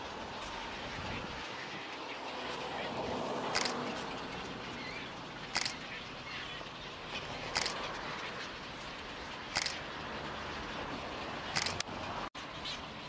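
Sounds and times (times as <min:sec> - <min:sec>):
camera shutter clicking: 0:03.6 - 0:03.8, 0:05.6 - 0:05.8, 0:07.6 - 0:07.8, 0:09.6 - 0:09.8, 0:11.6 - 0:11.8.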